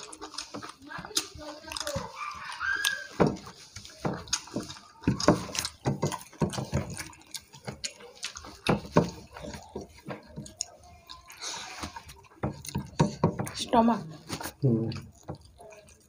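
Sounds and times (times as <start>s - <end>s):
chewing and lip smacks: 0.0s - 13.6s, 14.2s - 16.0s
hands mixing wet food: 0.0s - 16.0s.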